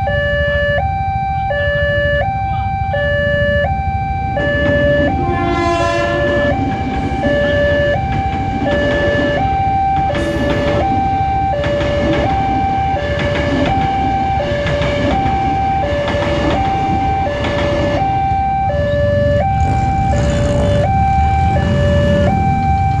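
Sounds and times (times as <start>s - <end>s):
two-tone crossing alarm: 0.0s - 23.0s
electric train rumbling past: 4.2s - 23.0s.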